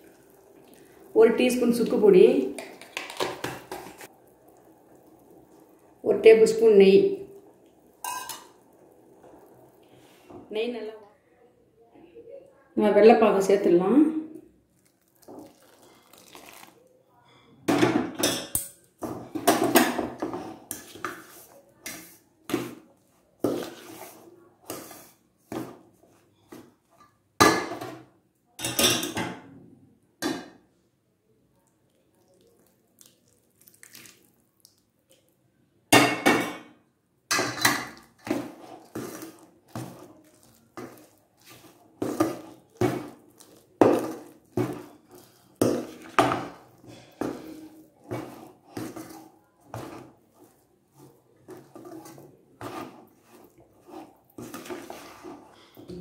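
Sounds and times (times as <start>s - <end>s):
spoon scraping a steel bowl: 37.4s - 55.8s.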